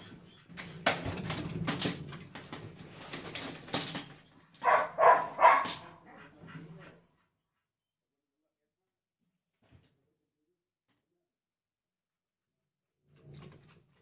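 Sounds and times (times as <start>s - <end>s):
dog crying: 4.6s - 6.0s.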